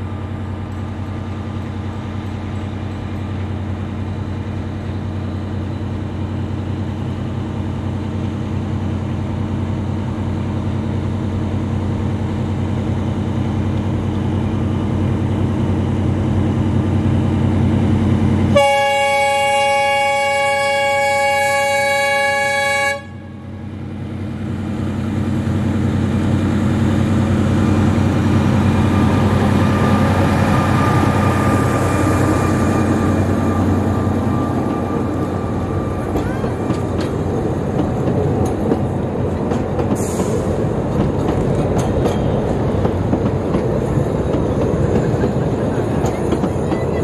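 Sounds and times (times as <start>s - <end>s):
locomotive horn blast: 18.5s - 23.6s
diesel engine passing: 24.9s - 47.0s.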